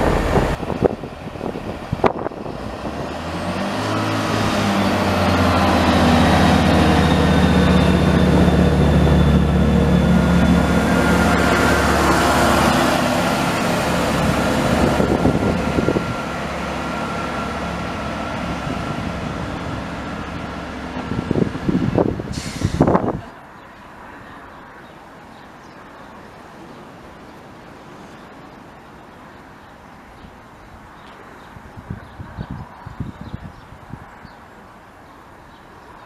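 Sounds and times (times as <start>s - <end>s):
diesel train engine: 0.0s - 25.3s.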